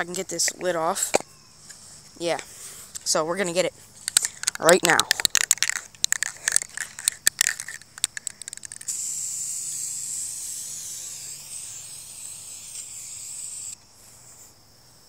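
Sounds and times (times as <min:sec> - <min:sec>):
sharp clicks: 0:04.0 - 0:08.9
aerosol spray paint hissing: 0:08.6 - 0:13.8.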